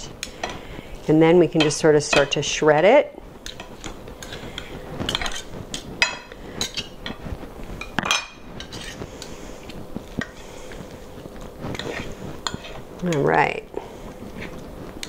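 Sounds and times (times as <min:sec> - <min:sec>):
knife and fork scraping platter: 0:03.4 - 0:07.2, 0:08.1 - 0:09.1, 0:11.7 - 0:13.2.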